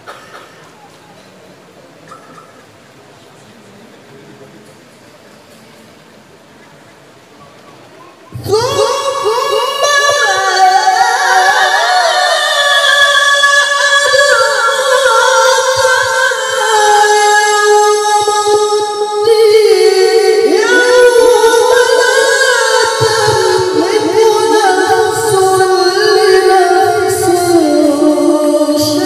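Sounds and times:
man reciting melodically: 8.4 - 29.0.

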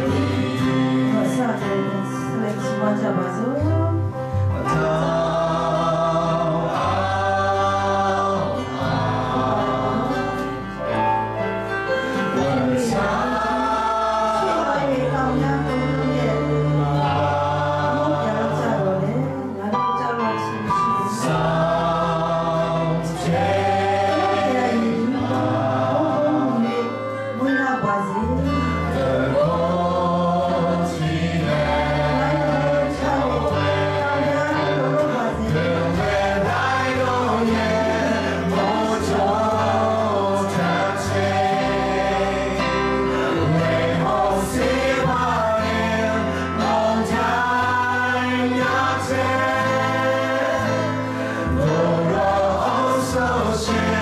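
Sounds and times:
congregation singing worship song: 0.0 - 54.0
instrumental accompaniment: 0.0 - 54.0.

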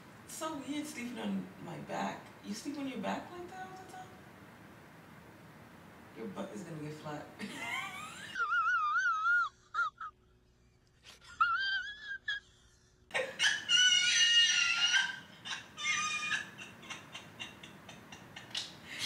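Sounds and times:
high-pitched whimpering cry: 11.4 - 17.0.

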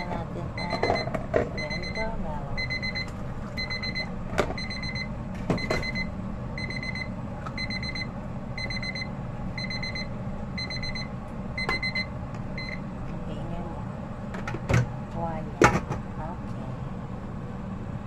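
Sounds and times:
steady low hum: 0.0 - 18.0
electronic alarm beeping: 0.6 - 12.8.

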